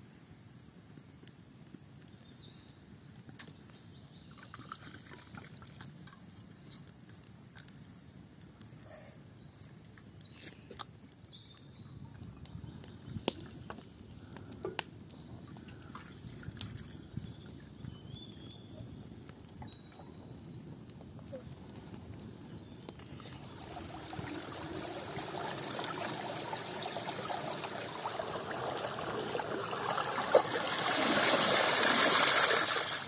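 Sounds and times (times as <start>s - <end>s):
water pouring from clay jug: 4.2s - 6.4s, 23.1s - 33.0s.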